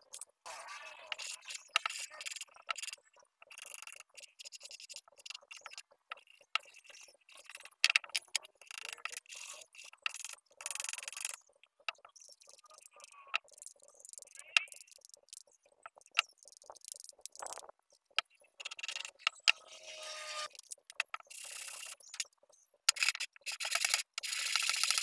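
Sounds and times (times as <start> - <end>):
sandpaper scratching wood: 19.6 - 20.5.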